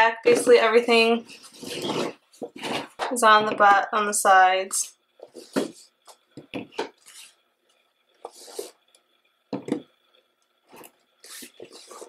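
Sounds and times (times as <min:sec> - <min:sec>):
cardboard boxes scraping: 0:00.9 - 0:03.0, 0:07.0 - 0:07.4, 0:08.3 - 0:08.8, 0:10.8 - 0:12.0.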